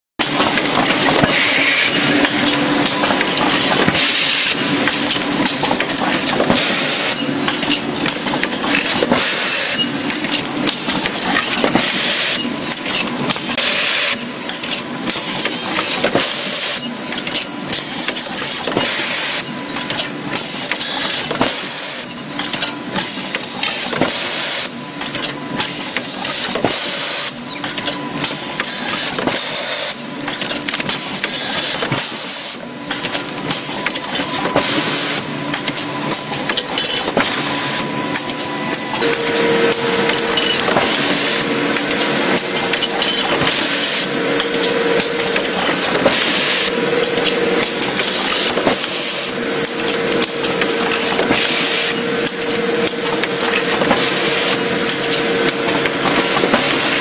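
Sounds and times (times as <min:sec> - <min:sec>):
packaging machine clatter: 0:00.2 - 0:57.0
faint machine whine: 0:31.3 - 0:57.0.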